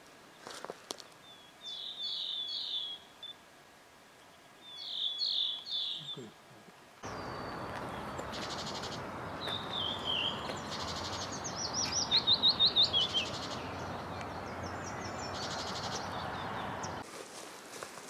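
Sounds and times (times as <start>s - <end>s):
steady outdoor hiss: 0.0s - 18.0s
bird calling: 7.0s - 17.0s.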